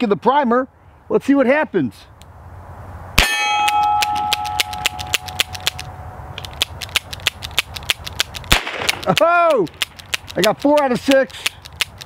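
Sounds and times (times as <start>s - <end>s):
steel target ringing: 3.2s - 5.3s
light evenly spaced ticks: 3.7s - 12.0s
revolver gunshot: 8.5s - 9.1s.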